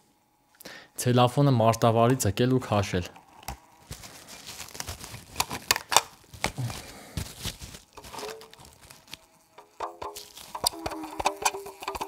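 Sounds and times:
cling film crinkling: 0:03.2 - 0:12.0
insect buzzing under film: 0:07.9 - 0:12.0.

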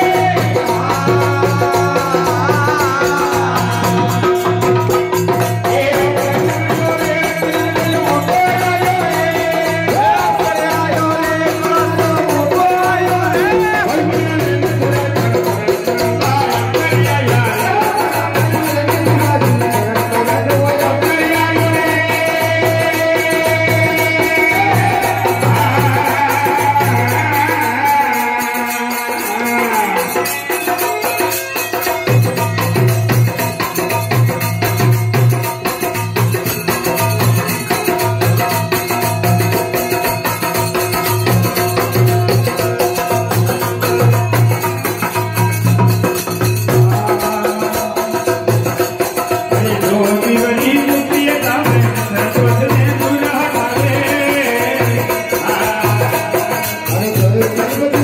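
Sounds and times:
harmonium melody: 0:00.0 - 0:58.0
hand cymbals jingling: 0:23.7 - 0:58.0.

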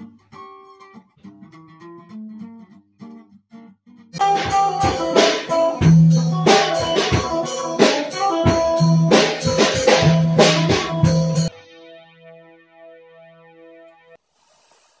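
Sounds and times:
rock music with guitar and drums: 0:04.2 - 0:12.0.

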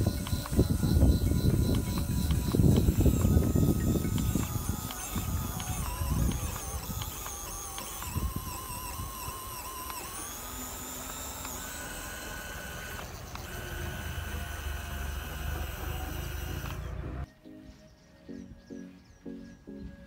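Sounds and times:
small electric motor whining: 0:00.0 - 0:17.3.

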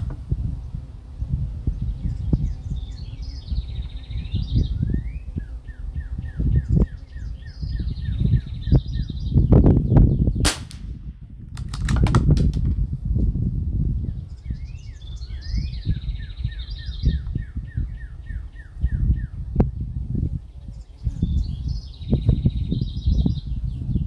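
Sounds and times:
wind on microphone: 0:00.0 - 0:24.0
songbird trilling and chirping: 0:01.7 - 0:10.4, 0:14.0 - 0:19.4, 0:20.6 - 0:24.0
rifle shot: 0:10.4 - 0:12.2.

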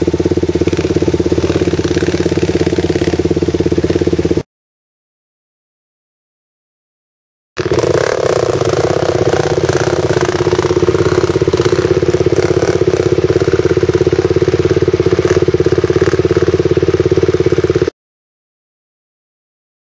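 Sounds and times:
dirt bike engine running: 0:00.0 - 0:04.5, 0:07.6 - 0:17.9.

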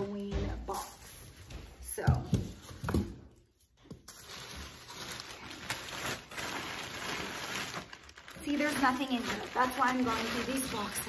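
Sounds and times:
plastic bag crinkling: 0:04.1 - 0:11.0.

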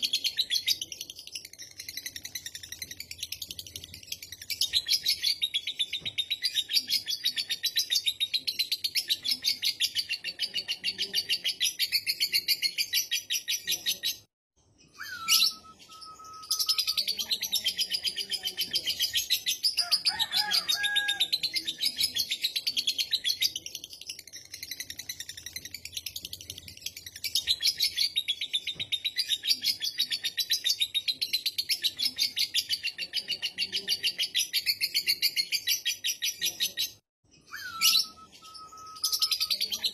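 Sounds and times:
bird whistled notes: 0:15.0 - 0:16.9, 0:37.4 - 0:39.6.

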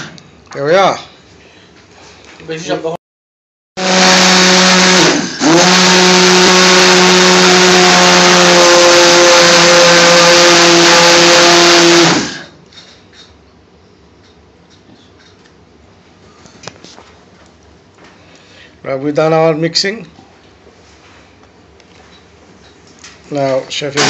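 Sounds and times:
blender running: 0:03.8 - 0:12.6.

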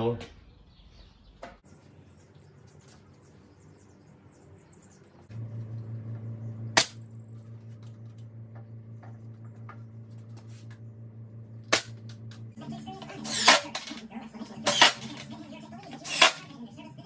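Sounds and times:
low hum: 0:00.5 - 0:17.0
nail gun firing: 0:13.2 - 0:13.9, 0:14.6 - 0:15.2, 0:16.0 - 0:16.5.

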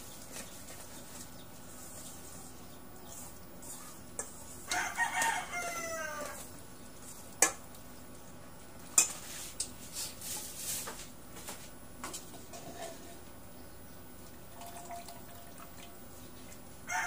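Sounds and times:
rooster crowing: 0:04.7 - 0:06.5.

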